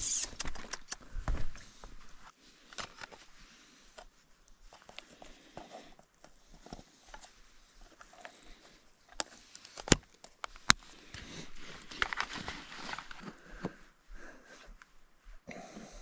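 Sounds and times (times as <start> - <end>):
fingers rustling in plastic box: 4.0 - 13.4.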